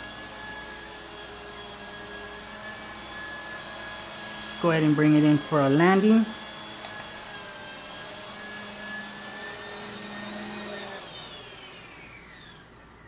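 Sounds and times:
toy helicopter motors whining: 0.0 - 13.0.

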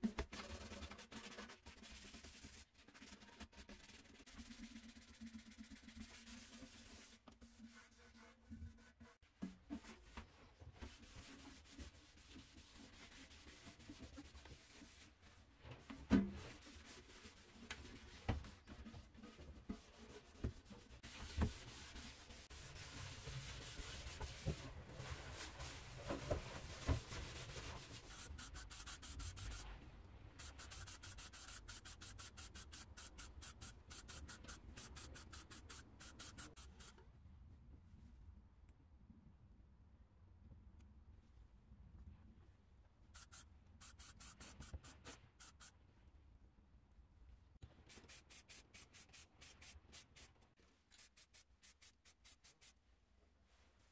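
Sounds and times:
sandpaper scuffing on metal: 26.6 - 29.7, 30.4 - 36.9, 43.2 - 45.7, 47.9 - 52.8.

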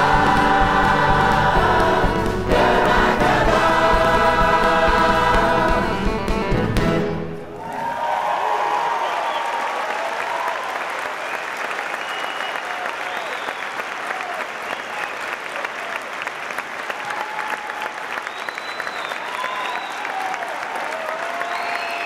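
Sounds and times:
audience cheering: 7.4 - 22.0
audience applauding: 7.5 - 22.0.

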